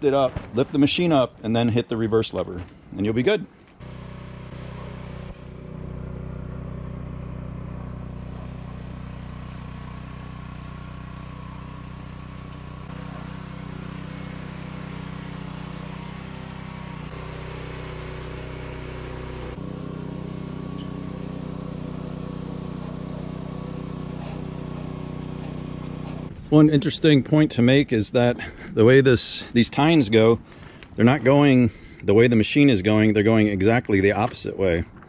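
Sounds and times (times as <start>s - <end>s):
tiller engine running under load: 3.8s - 26.4s.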